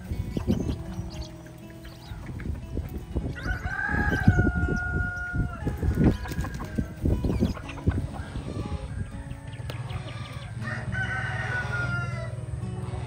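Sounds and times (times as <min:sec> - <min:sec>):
chickens clucking: 0:00.0 - 0:13.0
rooster crowing: 0:03.3 - 0:06.9, 0:08.9 - 0:12.4.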